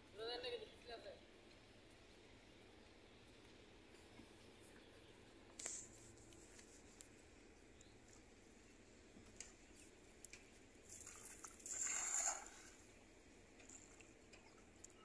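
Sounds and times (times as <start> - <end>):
faint clicks and patters: 0.1 - 11.5.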